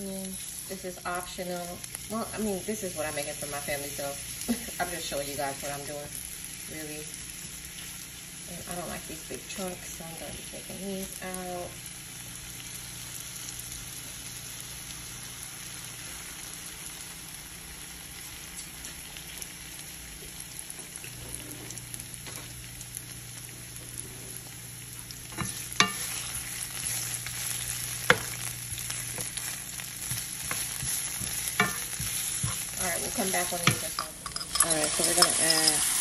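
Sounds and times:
onions sizzling in frying pan: 0.0 - 36.0
spatula tapping and scraping pan: 25.4 - 26.2, 28.1 - 29.4, 30.0 - 35.8.

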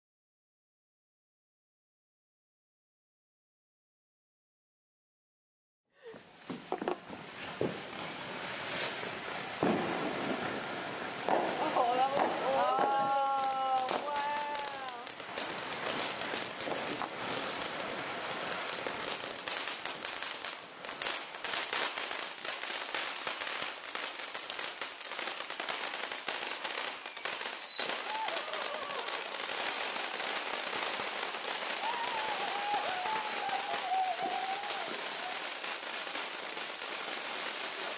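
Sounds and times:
fireworks crackling: 6.0 - 37.9
hiss of spraying sparks: 6.7 - 20.4, 25.9 - 37.9
falling whistle: 27.0 - 28.7, 31.8 - 35.0.

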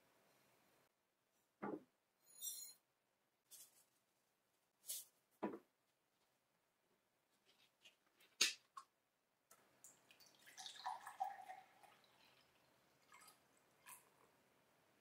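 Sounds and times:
water pouring into a glass: 9.8 - 14.3.

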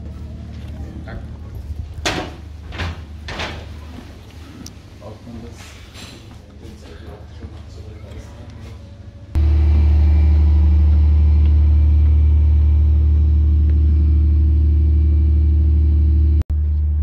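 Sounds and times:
ship engine drone: 8.8 - 17.0.

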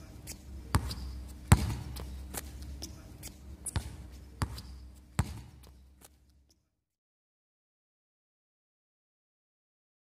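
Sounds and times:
low steady hum: 0.0 - 6.6
basketball bouncing on concrete: 0.7 - 2.9, 3.7 - 5.8.

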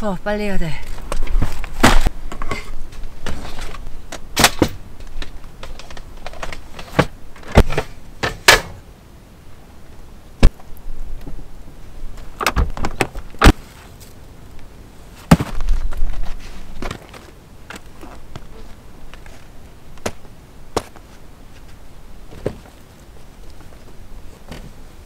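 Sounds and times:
gear knocks and clunks: 1.1 - 8.8
rustling: 12.1 - 25.0.

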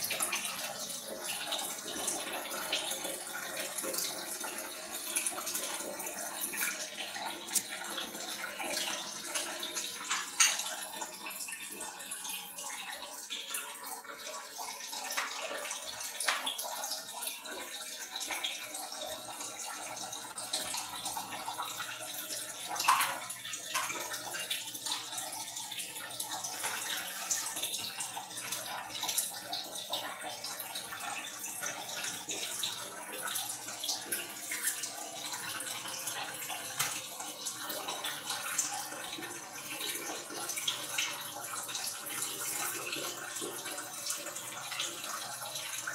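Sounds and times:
water splashing in a sink: 0.0 - 45.9.

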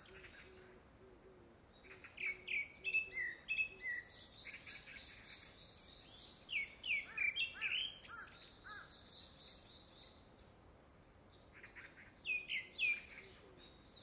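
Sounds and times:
thrush singing whistled notes: 1.8 - 10.2, 12.2 - 14.0.

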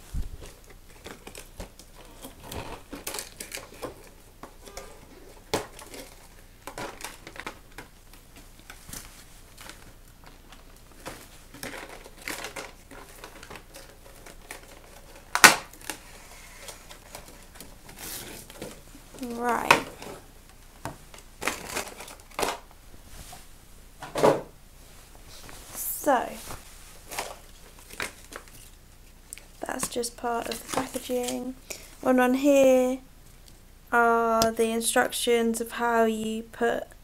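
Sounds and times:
stiff plastic packaging crinkling: 0.4 - 20.1, 21.1 - 22.7, 26.2 - 31.9
sharp loud plastic crack: 15.3 - 16.0.

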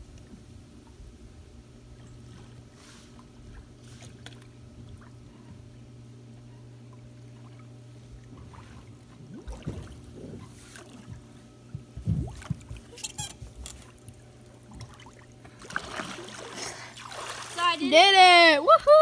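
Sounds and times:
low hum: 0.0 - 19.0
pool water splashing: 6.8 - 19.0.

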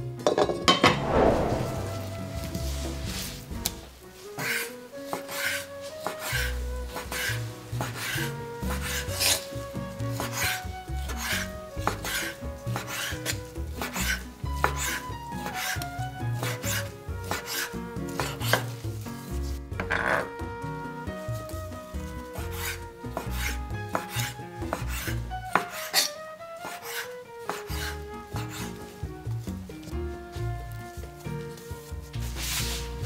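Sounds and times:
kitchen tool rasping on food: 22.4 - 28.8.

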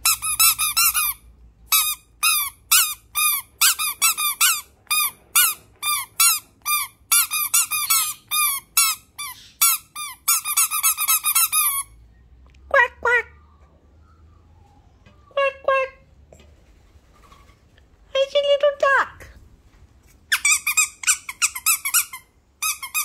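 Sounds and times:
squeaky toys squeaking: 0.0 - 12.0, 20.3 - 23.0.

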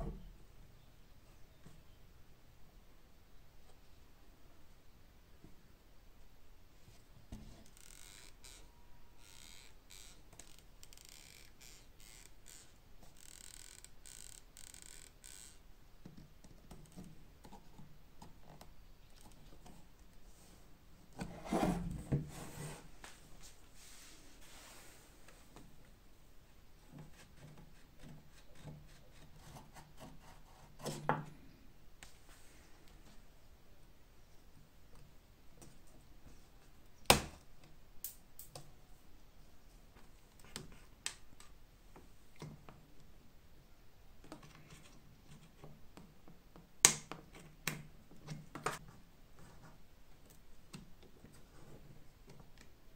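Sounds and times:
leather bellows creaking: 7.6 - 15.6.

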